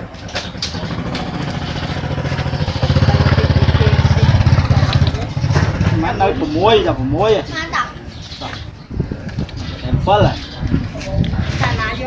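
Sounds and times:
small engine running: 0.7 - 6.0.

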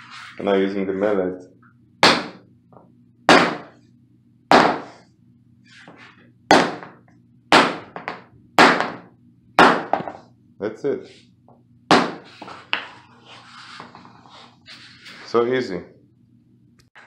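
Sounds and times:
rubber mallet knocking plank: 4.5 - 4.9, 6.5 - 9.0.

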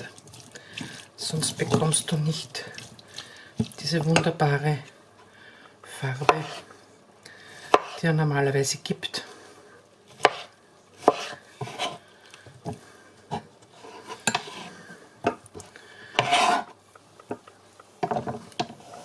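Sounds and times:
knife scraping across board: 6.3 - 6.7, 10.2 - 12.0, 13.3 - 14.8, 16.2 - 16.8.

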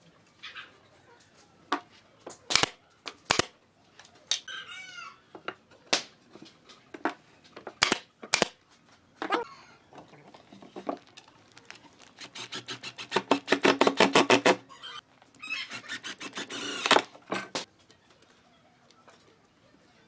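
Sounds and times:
impact driver driving screws: 12.2 - 14.6, 15.7 - 17.1.

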